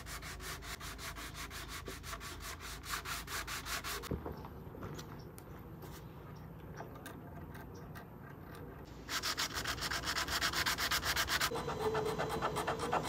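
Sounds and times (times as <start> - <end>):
sandpaper rubbing on wood: 0.0 - 4.1, 9.1 - 13.0.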